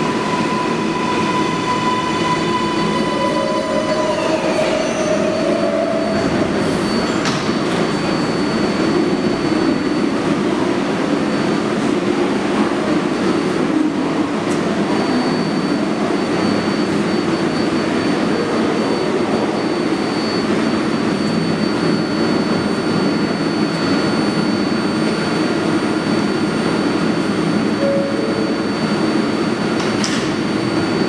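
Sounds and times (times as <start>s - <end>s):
train equipment drone: 0.0s - 31.0s
thin high whine: 27.6s - 29.9s.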